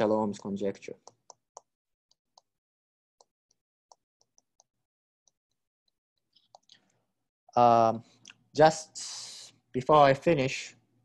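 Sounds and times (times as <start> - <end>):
stylus tapping on a tablet: 1.0 - 2.5, 3.2 - 5.4.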